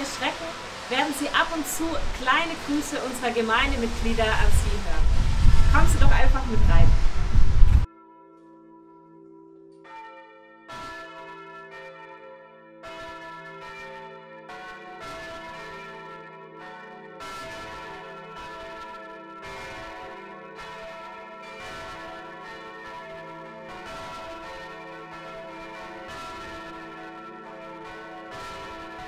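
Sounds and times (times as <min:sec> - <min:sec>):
church bells pealing: 0:08.7 - 0:29.0.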